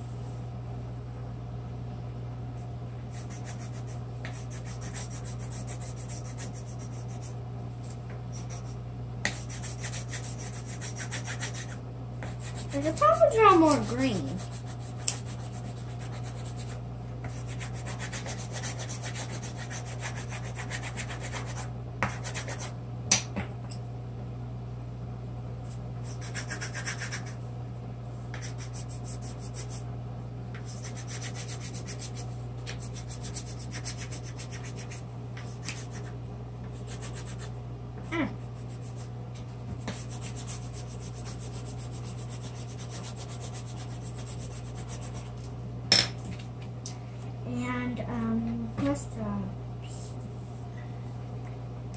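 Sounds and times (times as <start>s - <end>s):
pencil scribbling on paper: 3.1s - 7.3s, 8.3s - 22.7s, 26.0s - 27.4s, 28.4s - 29.8s, 30.7s - 32.2s, 32.8s - 36.1s, 36.8s - 37.5s, 39.8s - 45.3s.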